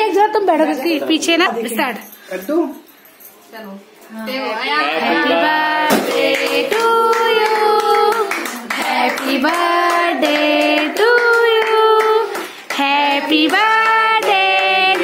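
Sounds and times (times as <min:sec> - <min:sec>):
singing with long held notes: 0:04.5 - 0:15.0
hands clapping along: 0:05.9 - 0:15.0.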